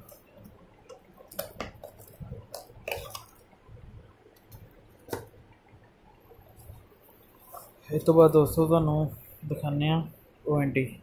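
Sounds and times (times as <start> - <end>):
plastic wrapping crinkling: 1.2 - 3.4.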